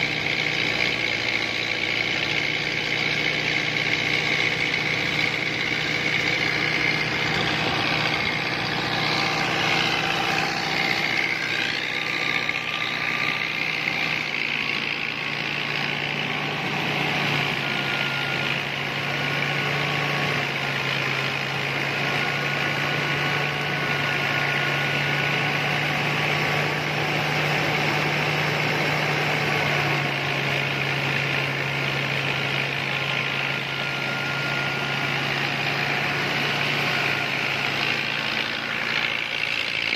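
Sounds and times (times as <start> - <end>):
thresher machine droning: 0.0 - 39.9.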